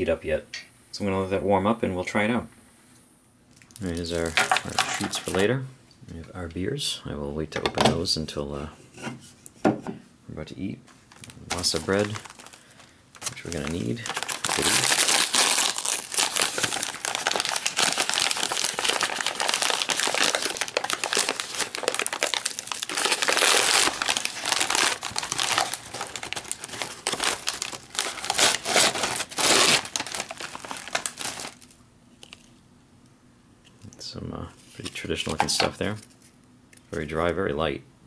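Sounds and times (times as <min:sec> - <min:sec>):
paper packaging crinkling: 0:03.6 - 0:05.5, 0:10.9 - 0:32.6.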